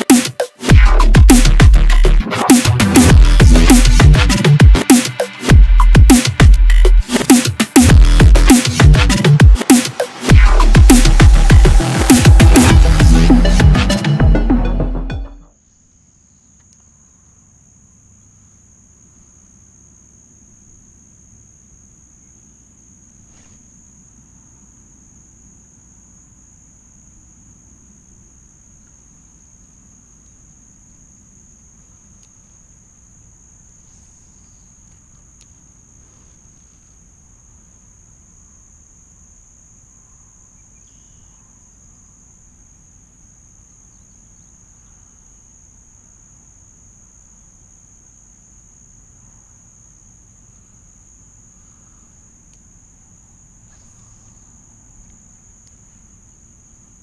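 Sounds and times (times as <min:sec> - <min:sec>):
high-pitched insect drone: 0:00.0 - 0:14.3, 0:39.6 - 0:42.4
low rumble: 0:10.3 - 0:15.2
faint clicks: 0:34.8 - 0:35.6.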